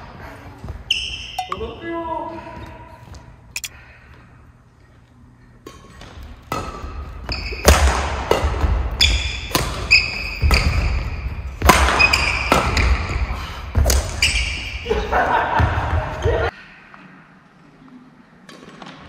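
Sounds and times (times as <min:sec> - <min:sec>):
shoes squeaking on wooden floor: 0:00.7 - 0:01.8, 0:07.2 - 0:07.7
racket striking shuttlecock: 0:05.6 - 0:10.8.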